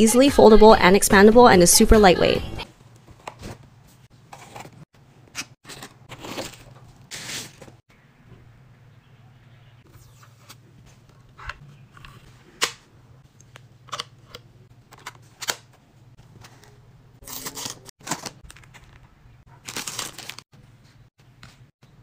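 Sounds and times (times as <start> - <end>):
foil wrapper crinkling: 17.2 - 20.4.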